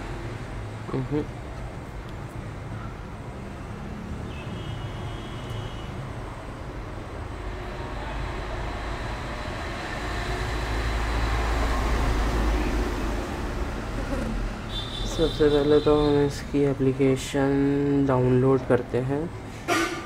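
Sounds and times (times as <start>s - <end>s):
street traffic: 0.0s - 20.0s
vehicle engine rumble: 6.0s - 19.8s.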